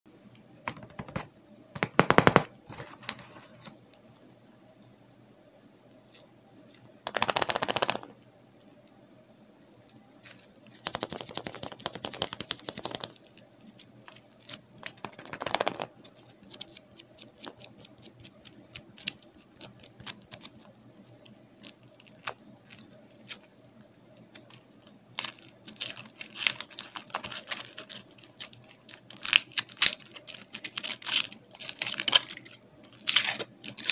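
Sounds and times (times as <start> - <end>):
foil wrappers crinkling: 10.2 - 23.6, 24.3 - 33.9.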